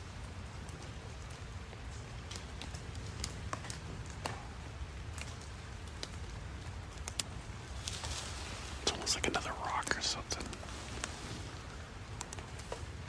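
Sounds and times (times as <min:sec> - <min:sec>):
soft hiss: 0:00.0 - 0:13.0
light taps and ticks: 0:00.6 - 0:04.5, 0:05.1 - 0:08.2, 0:12.0 - 0:12.9.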